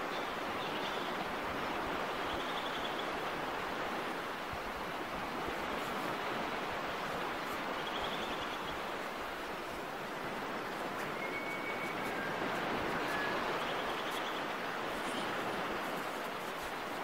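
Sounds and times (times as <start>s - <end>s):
surf rushing on beach: 0.0s - 17.0s
faint high whistle: 11.1s - 13.8s.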